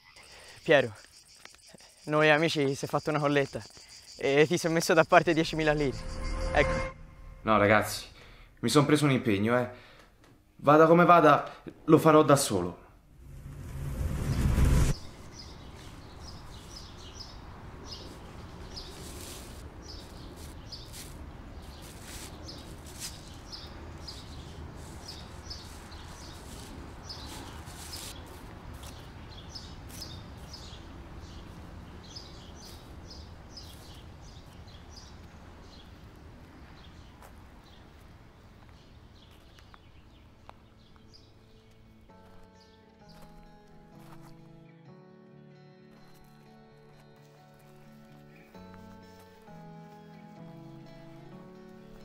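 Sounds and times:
small birds chirping: 0.0s - 6.0s, 15.0s - 43.4s.

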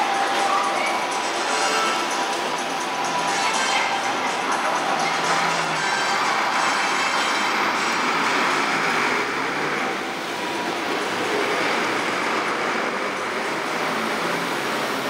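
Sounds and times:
city street traffic noise: 0.0s - 15.0s.

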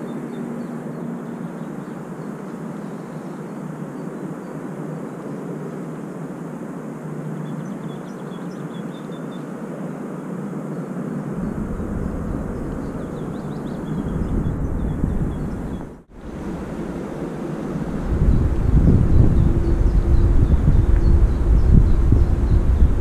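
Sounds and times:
wind buffeting microphone: 10.8s - 23.0s
distant rumble: 11.2s - 23.0s.

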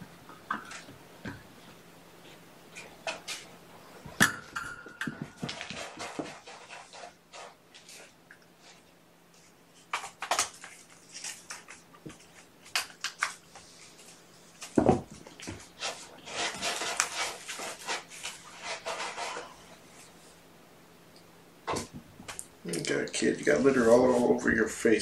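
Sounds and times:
kitten digging in cat litter: 5.2s - 14.6s, 15.2s - 20.2s.

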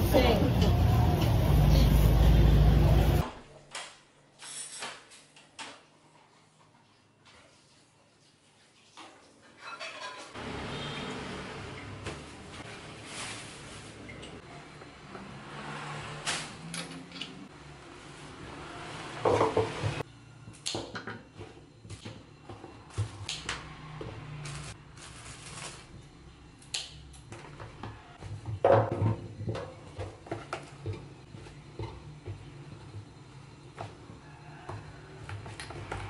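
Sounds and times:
plastic and paper rustling: 24.4s - 26.0s.

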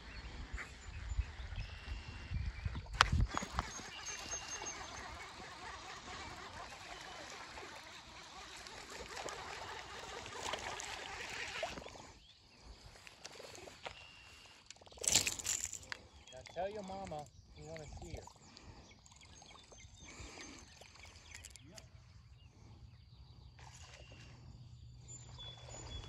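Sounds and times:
fishing reel cranking: 3.3s - 11.9s, 15.0s - 16.0s
fish splashing out of water: 3.3s - 12.0s.

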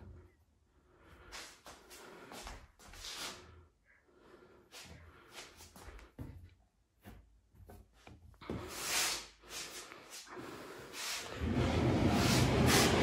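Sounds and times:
panel rubbing and scraping: 11.0s - 13.0s.

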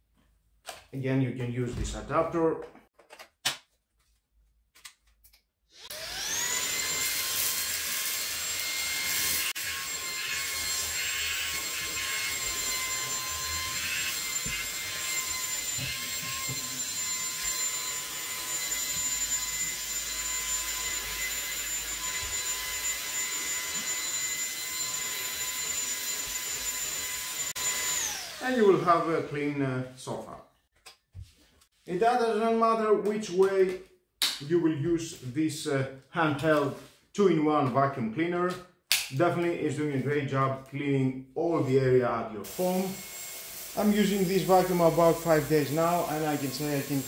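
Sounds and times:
vacuum cleaner motor whine: 5.8s - 29.4s, 42.5s - 47.0s.

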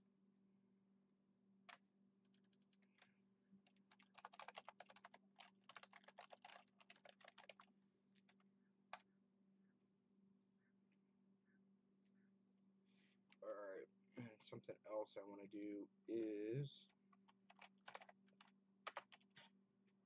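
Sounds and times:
typing on keyboard: 2.2s - 9.0s, 17.2s - 19.4s.

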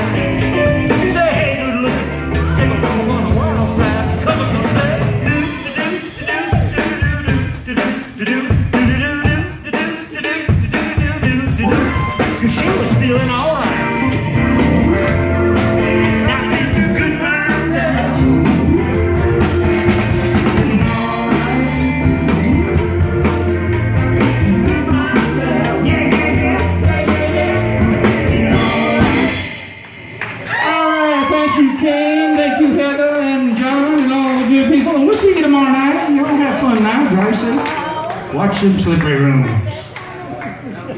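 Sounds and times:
keyboard: 0.0s - 7.6s, 10.3s - 31.5s
person singing: 0.0s - 19.6s, 20.5s - 29.7s
drum kit: 0.0s - 31.3s.

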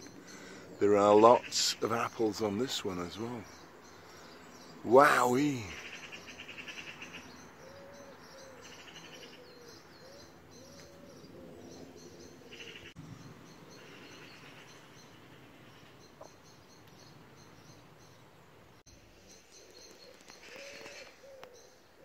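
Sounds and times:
songbirds chirping and trilling: 0.0s - 22.0s
low repeated cooing: 5.6s - 13.0s, 20.0s - 22.0s.

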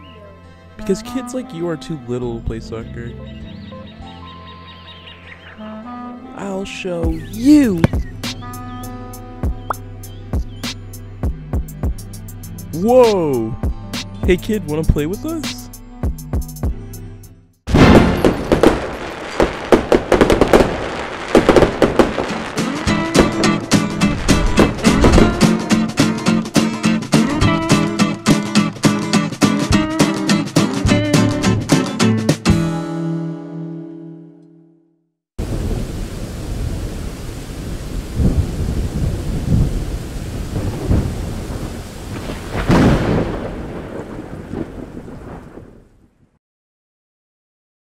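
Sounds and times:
music: 0.0s - 18.4s, 21.9s - 35.1s
fireworks crackling and popping: 17.7s - 26.2s
thunder rolling: 17.7s - 26.5s, 35.4s - 46.3s
steady rain: 17.8s - 25.2s, 35.4s - 46.0s.

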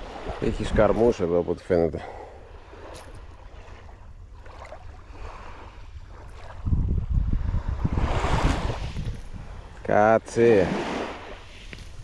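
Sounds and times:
wind gusting on microphone: 0.0s - 1.2s, 5.1s - 10.0s
sea waves: 0.0s - 12.0s.

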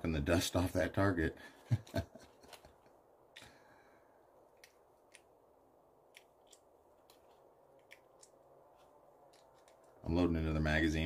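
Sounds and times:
faint irregular clicks: 4.5s - 5.4s, 6.1s - 10.0s.

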